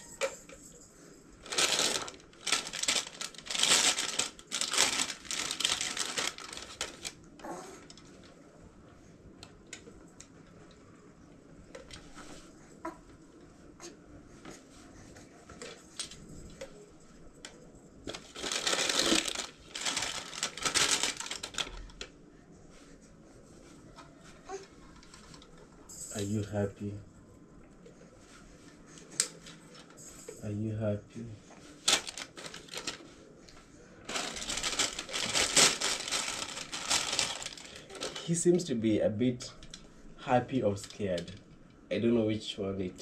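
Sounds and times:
packaging crinkling: 0:01.4 - 0:07.3, 0:18.1 - 0:22.1, 0:31.8 - 0:33.0, 0:34.1 - 0:38.4.

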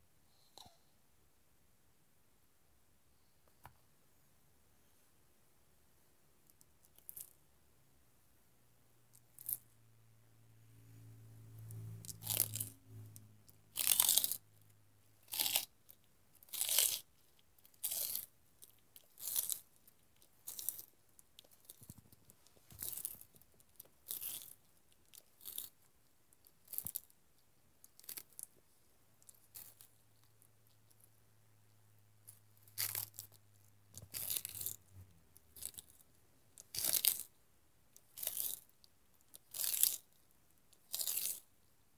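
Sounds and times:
tortoise crunching vegetables: 0:06.5 - 0:07.4, 0:09.1 - 0:09.7, 0:11.6 - 0:28.6, 0:29.2 - 0:31.1, 0:32.2 - 0:41.6.

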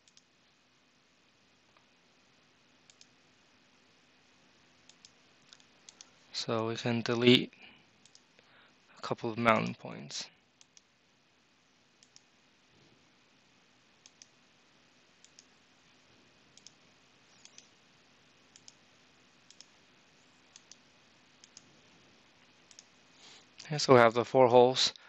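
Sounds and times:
faint mouse clicks: 0:00.0 - 0:00.3, 0:02.8 - 0:03.1, 0:04.8 - 0:06.2, 0:08.0 - 0:08.5, 0:12.0 - 0:12.3, 0:14.0 - 0:14.3, 0:15.2 - 0:15.5, 0:16.6 - 0:16.8, 0:17.4 - 0:17.8, 0:18.5 - 0:18.8, 0:19.5 - 0:19.7, 0:20.5 - 0:20.8, 0:21.4 - 0:21.7, 0:22.7 - 0:22.9.

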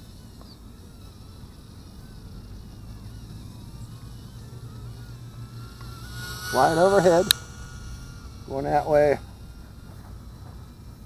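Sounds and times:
distant quadcopter motor whine: 0:00.0 - 0:11.0.

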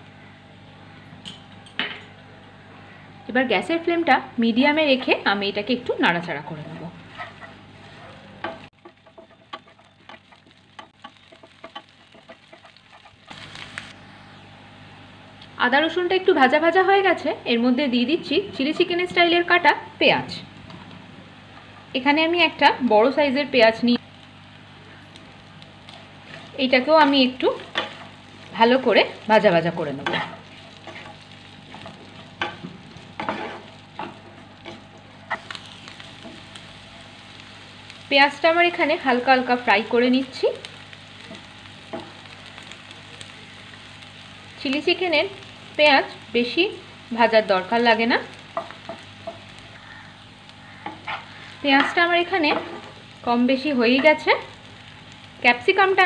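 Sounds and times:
sizzling frying in oil: 0:00.0 - 0:56.0
wooden spatula scraping pan: 0:06.5 - 0:10.3, 0:30.0 - 0:35.5.

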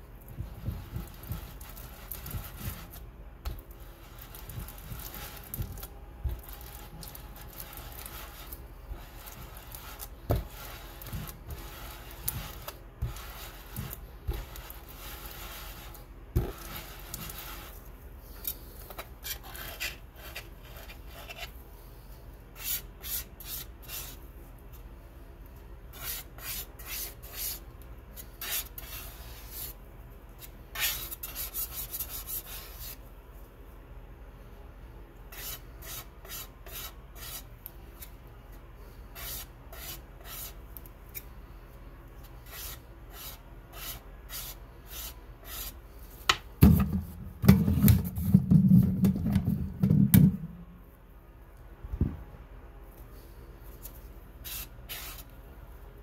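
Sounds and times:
muller grinding paint on a plate: 0:00.5 - 0:03.0, 0:06.3 - 0:17.8
palette knife scraping: 0:00.8 - 0:21.6, 0:30.4 - 0:33.0, 0:42.3 - 0:45.8, 0:54.4 - 0:55.3.

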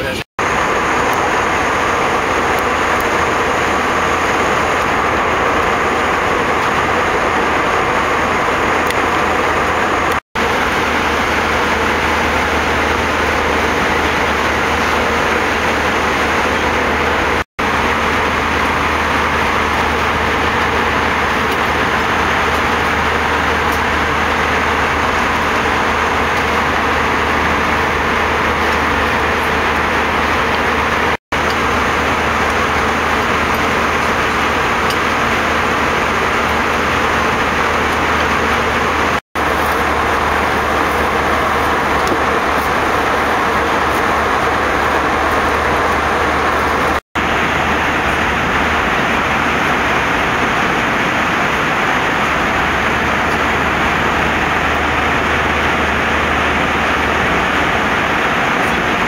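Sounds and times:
low cabin hum: 0:00.0 - 0:59.0
rushing airflow and engines: 0:00.0 - 0:59.0.

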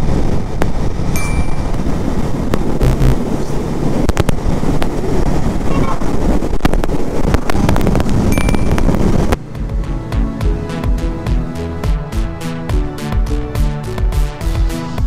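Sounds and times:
motorcycle engine running: 0:00.0 - 0:03.4, 0:07.4 - 0:14.3
wind on microphone: 0:00.0 - 0:13.0.

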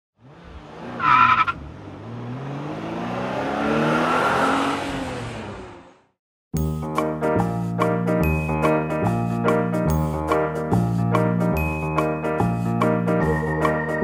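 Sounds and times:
car engine revving: 0:00.2 - 0:06.1
tire squeal: 0:00.8 - 0:01.9
music: 0:06.6 - 0:14.0.

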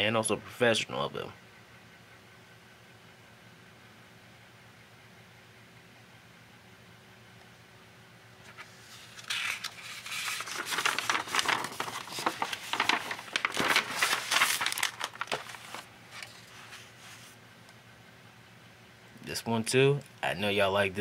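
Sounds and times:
paper page rustling: 0:08.4 - 0:17.4.

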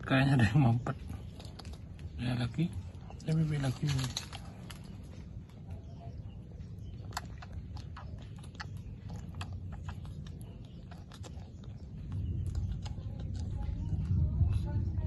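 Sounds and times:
low steady rumble: 0:00.0 - 0:15.0
wet suckling clicks and smacks: 0:06.8 - 0:14.8.

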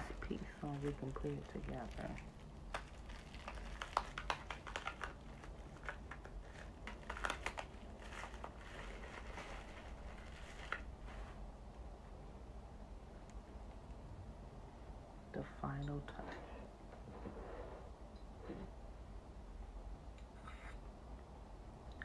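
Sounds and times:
plastic wrapping crinkling: 0:00.0 - 0:11.5.

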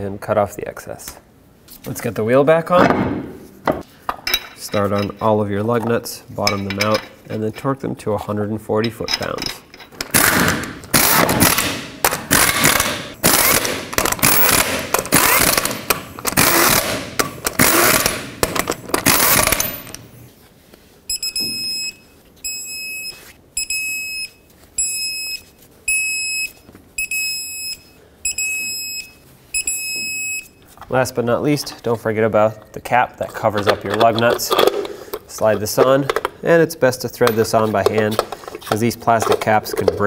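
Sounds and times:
impact wrench bursts: 0:10.1 - 0:20.0.

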